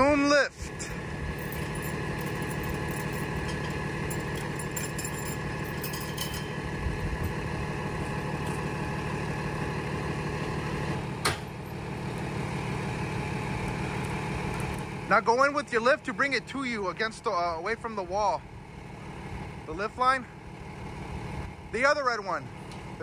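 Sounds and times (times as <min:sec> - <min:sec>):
truck engine running: 0:00.0 - 0:23.0
hydraulic boom whining: 0:00.6 - 0:16.0.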